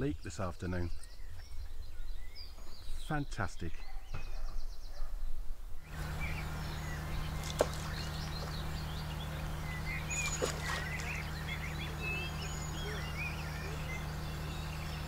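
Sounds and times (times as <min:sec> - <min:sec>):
birds chirping: 0:00.0 - 0:15.0
steady low hum: 0:05.7 - 0:15.0.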